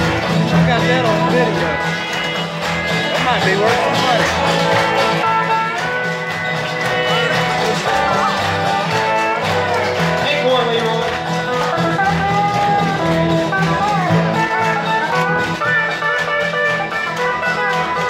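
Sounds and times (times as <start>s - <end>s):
guitars playing: 0.0s - 18.0s
upright bass line: 0.0s - 18.0s.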